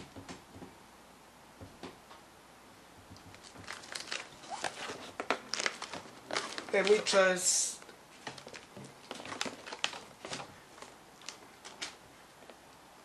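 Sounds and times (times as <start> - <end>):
packing tape being cut and scraped: 3.4 - 7.0.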